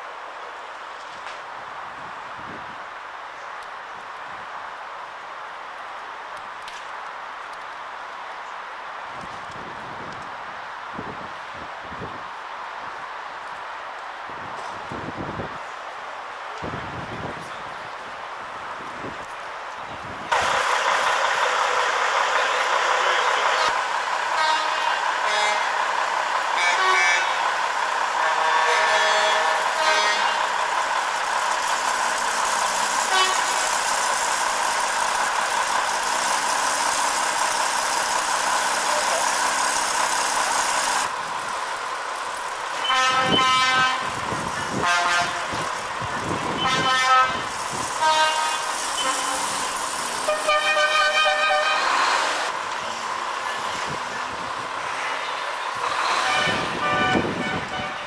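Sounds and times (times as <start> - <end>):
vehicles background noise: 0.0 - 58.0
vehicle horn blasts: 24.4 - 25.8, 26.6 - 27.4, 28.2 - 30.4, 33.1 - 33.4, 42.8 - 44.1, 44.8 - 45.5, 46.6 - 47.4, 48.0 - 49.6, 50.3 - 52.0, 56.1 - 58.0.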